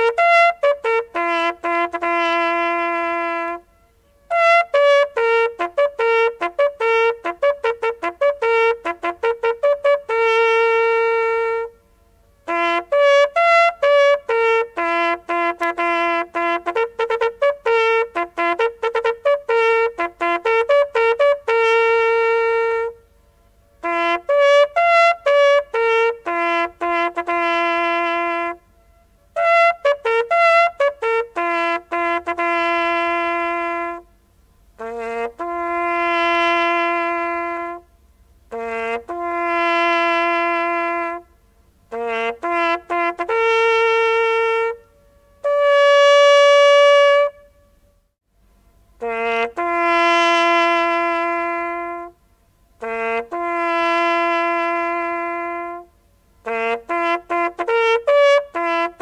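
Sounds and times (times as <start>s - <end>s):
solo brass horn playing bugle call: 0.0s - 48.1s, 48.8s - 59.0s.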